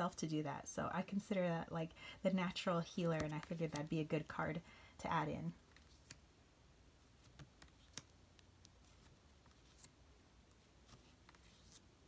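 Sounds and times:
cards clicking and sliding: 3.0 - 3.9, 5.7 - 6.3, 7.2 - 11.9.

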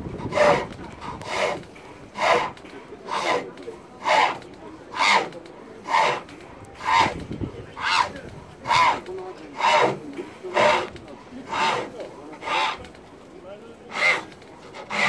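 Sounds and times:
lathe tool rasping wood: 0.1 - 13.0, 13.9 - 15.0.

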